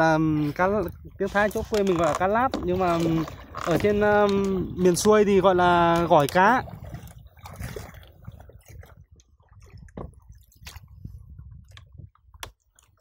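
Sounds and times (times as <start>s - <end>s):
paddle clicks: 0.8s - 10.9s, 11.6s - 13.0s
paddle splashing in water: 1.2s - 13.0s.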